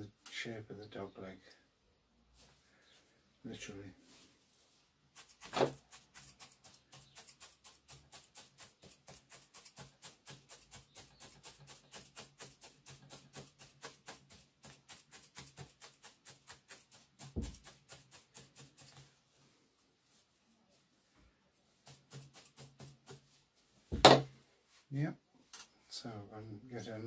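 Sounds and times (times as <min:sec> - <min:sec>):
felting needle poking wool: 0:05.1 - 0:19.2, 0:21.6 - 0:24.3
thump: 0:17.4 - 0:17.6, 0:23.9 - 0:24.3.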